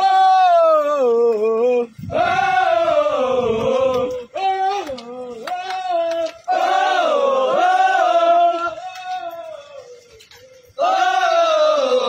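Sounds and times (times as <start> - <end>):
soldiers singing march chant: 0.0 - 12.0.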